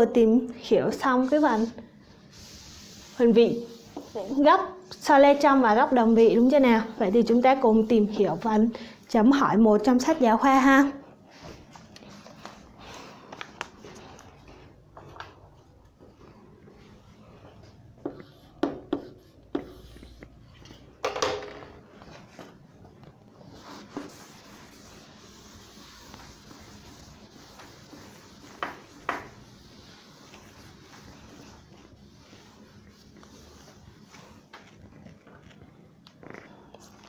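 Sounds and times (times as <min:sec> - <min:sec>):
objects knocking and handled: 0:20.6 - 0:21.8.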